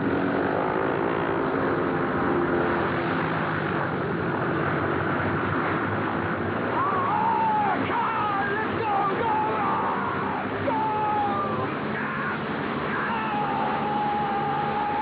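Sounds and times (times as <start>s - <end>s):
propeller plane engines running: 0.0s - 15.0s
man shouting: 6.7s - 15.0s.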